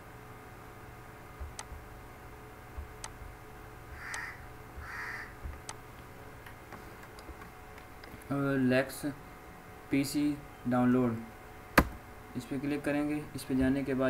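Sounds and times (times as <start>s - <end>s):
computer mouse clicks: 1.4s - 1.8s
short harsh calls: 4.0s - 5.4s.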